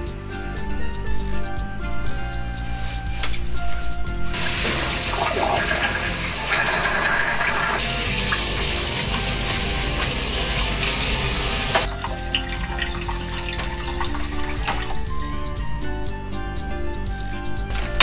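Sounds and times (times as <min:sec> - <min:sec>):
background music: 0:00.0 - 0:18.0
water splashing into a sink: 0:04.4 - 0:14.9.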